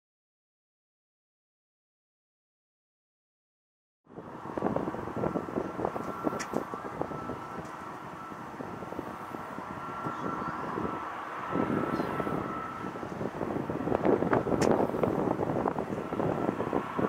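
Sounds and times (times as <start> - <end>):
distant jet engines rumbling: 4.1 - 17.0
faint steady whine: 4.1 - 17.0.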